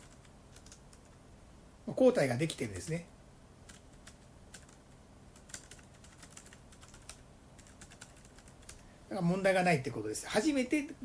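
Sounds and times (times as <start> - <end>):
keyboard typing clicks: 5.4 - 8.8.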